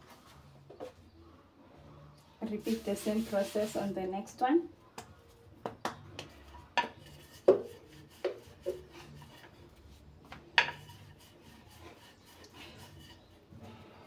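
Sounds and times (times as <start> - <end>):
rolling pin rubbing on dough: 2.4 - 4.0, 6.2 - 13.6
wooden rolling pin knocking counter: 5.6 - 8.9.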